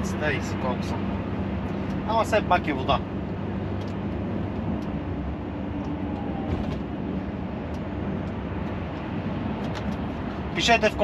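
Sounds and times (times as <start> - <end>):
road noise: 0.0 - 11.0
truck engine drone: 0.0 - 11.0.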